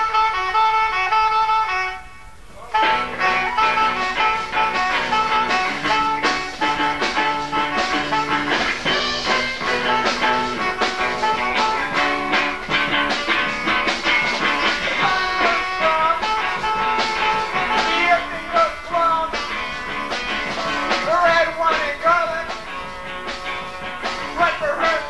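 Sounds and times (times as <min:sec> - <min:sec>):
live rock band with guitar: 0:00.0 - 0:25.0.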